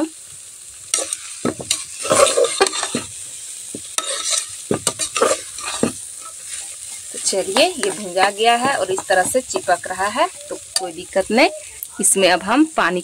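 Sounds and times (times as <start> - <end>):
steady sizzle: 0.0 - 13.0
metal spatula scraping a pot: 0.9 - 3.2, 3.8 - 11.8.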